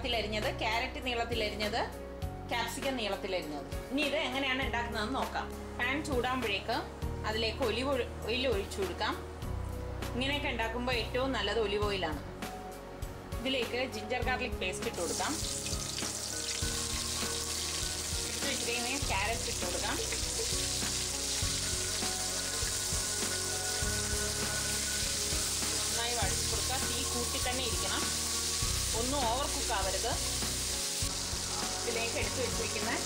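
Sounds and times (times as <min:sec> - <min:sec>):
carrot strips sizzling: 0:14.8 - 0:33.0.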